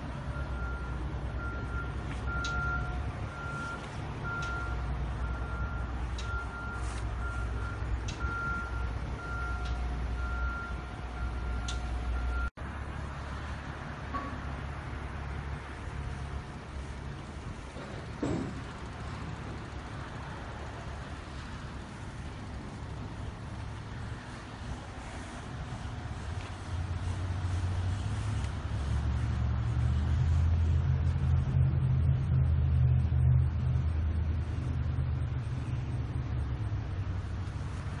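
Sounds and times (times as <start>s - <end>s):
diesel engine idling: 0.0s - 38.0s
backup alarm beeping: 0.3s - 12.5s.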